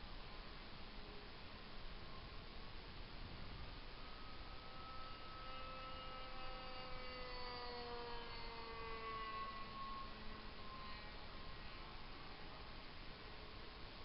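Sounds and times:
wind noise hiss: 0.0s - 7.1s
model airplane motor whining: 3.2s - 13.5s.

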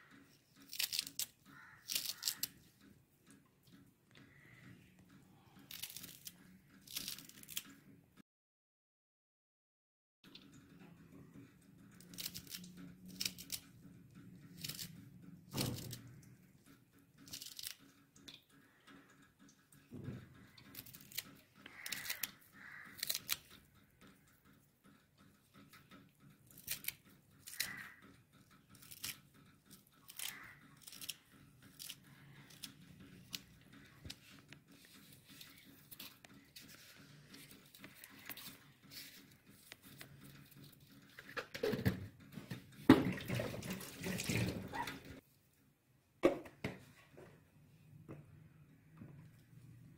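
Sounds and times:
scissors snipping chilli: 0.6s - 2.6s, 5.6s - 7.6s, 12.0s - 13.7s, 20.6s - 23.5s, 26.5s - 28.0s, 28.7s - 33.5s.

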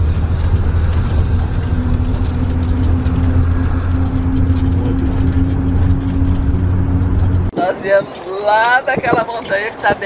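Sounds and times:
bus engine rumbling: 0.0s - 10.0s
road noise: 0.0s - 10.0s.

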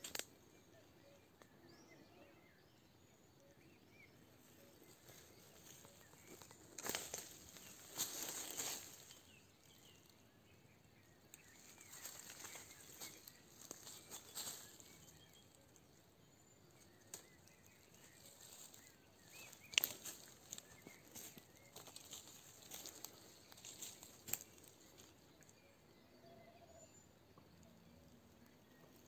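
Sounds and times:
faint bird chirps: 0.0s - 29.0s
rustling in dry leaves: 5.0s - 9.9s, 11.3s - 15.6s, 16.8s - 25.2s.

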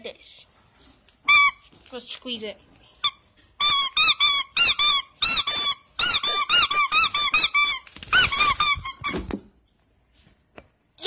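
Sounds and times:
squeaky toy squeaking: 1.3s - 1.7s, 3.0s - 9.2s.

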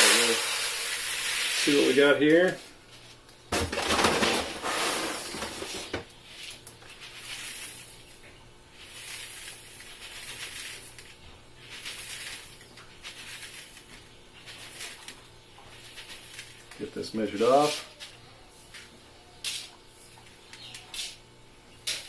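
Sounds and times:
grain trickling into plastic bucket: 6.8s - 8.0s, 8.8s - 17.8s
grain scooped from paper sack: 6.9s - 8.0s, 8.8s - 13.9s.

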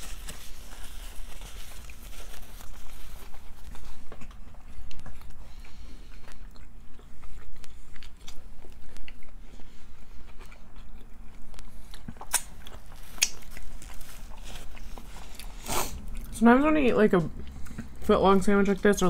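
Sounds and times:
people chewing sandwiches: 0.0s - 19.0s.

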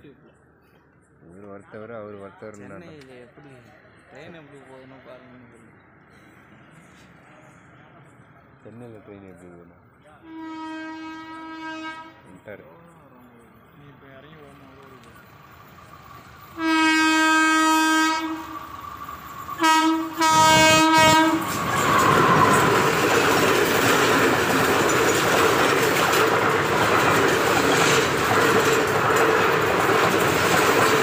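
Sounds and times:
train horn blasts: 10.2s - 12.4s, 16.6s - 18.7s, 19.6s - 22.7s
train wheels clattering: 18.4s - 31.0s.

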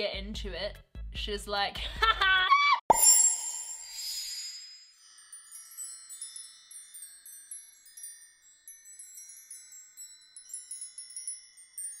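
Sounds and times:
tinkling chimes: 2.9s - 12.0s.

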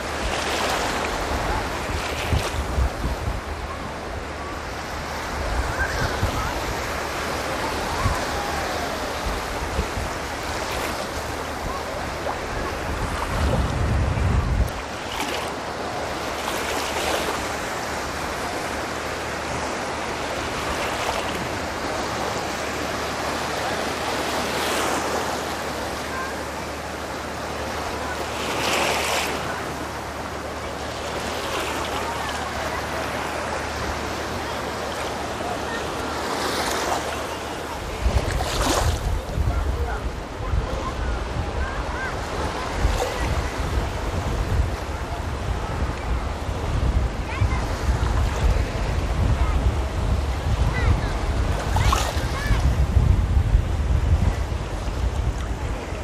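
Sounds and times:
wind buffeting microphone: 0.0s - 16.0s, 37.6s - 56.0s
waves breaking on sand: 0.0s - 56.0s.

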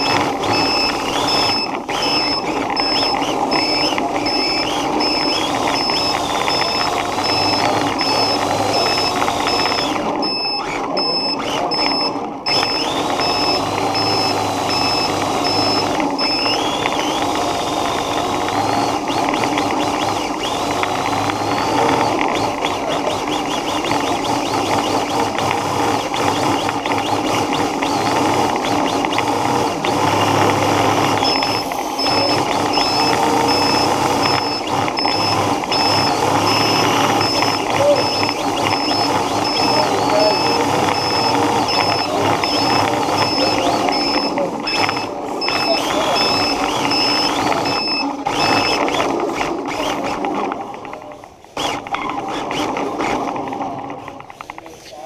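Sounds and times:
high-pitched beep: 0.0s - 17.3s, 30.1s - 49.0s
toy car motor whining: 0.0s - 55.0s
tyre and drive noise: 0.0s - 55.0s.

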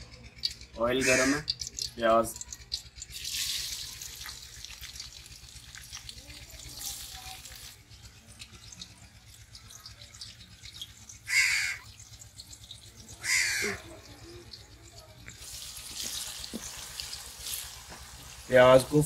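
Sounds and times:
onions frying in hot oil: 0.3s - 19.0s
crow cawing: 0.8s - 1.5s, 11.2s - 11.9s, 13.2s - 14.0s.

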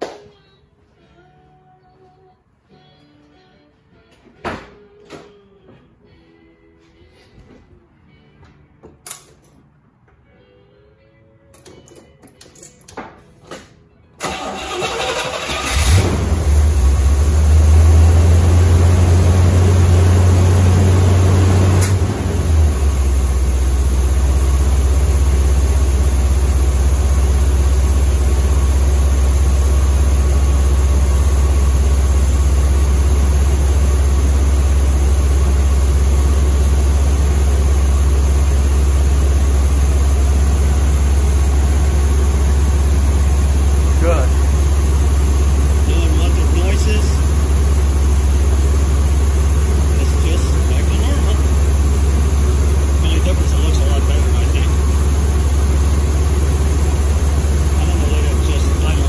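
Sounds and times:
car engine cranking: 14.2s - 31.3s
car engine idling: 14.2s - 59.0s.

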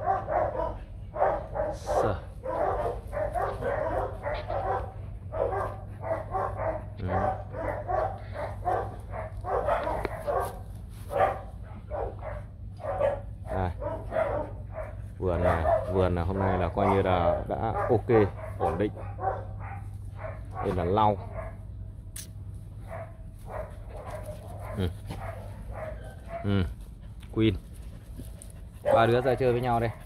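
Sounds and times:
dogs barking: 0.0s - 21.9s, 22.8s - 30.0s
low hum: 21.2s - 29.0s.

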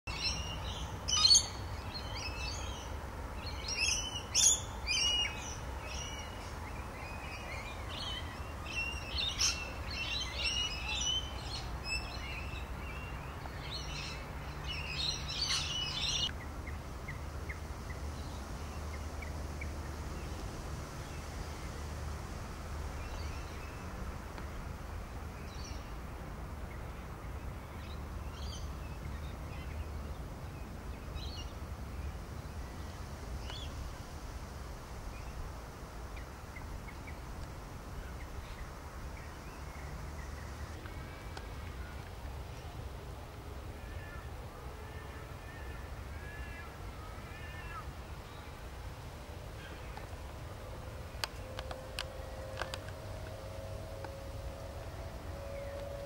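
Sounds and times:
birds chirping and calling: 0.1s - 2.7s, 13.8s - 16.3s.

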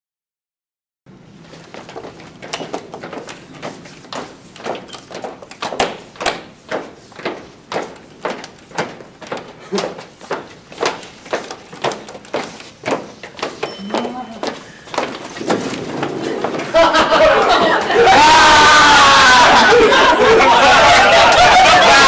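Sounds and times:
footsteps on hard floor: 1.4s - 18.0s.

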